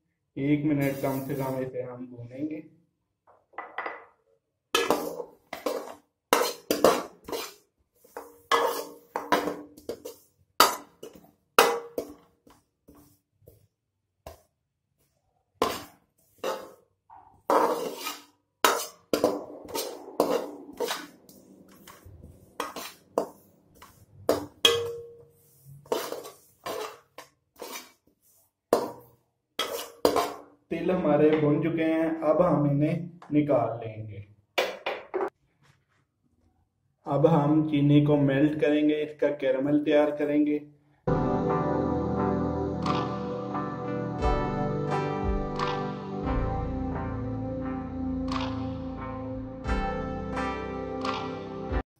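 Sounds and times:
metal spoon scraping a wok: 0.8s - 1.6s, 4.8s - 11.2s, 15.6s - 16.8s, 17.5s - 28.0s, 29.6s - 30.4s.

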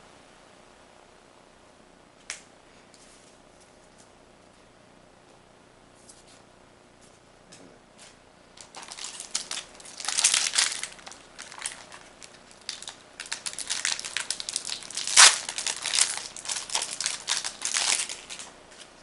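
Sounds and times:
foil wrapper crinkling: 8.6s - 19.0s.

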